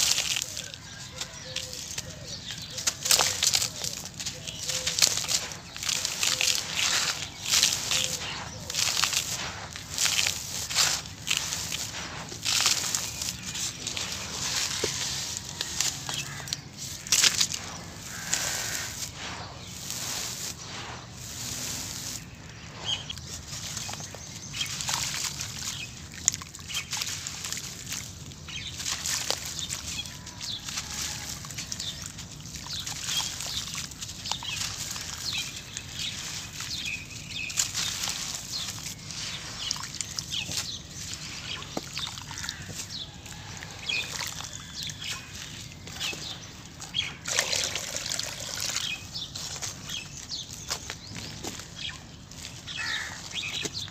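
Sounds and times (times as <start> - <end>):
dust shaken in plastic sieve: 0.0 - 25.8, 47.2 - 49.9
hands squeezing wet paste: 0.0 - 53.9
water sloshing: 0.0 - 53.9.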